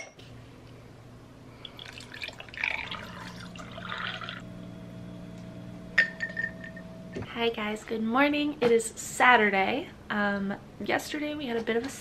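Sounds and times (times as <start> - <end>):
liquid pouring over ice: 1.6 - 4.4.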